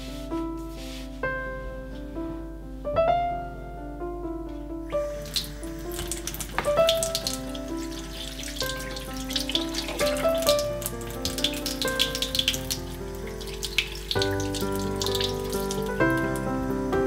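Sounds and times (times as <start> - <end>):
background music with held notes: 0.0 - 17.0
eggs rinsed under water: 5.0 - 16.9
faucet running: 5.0 - 17.0.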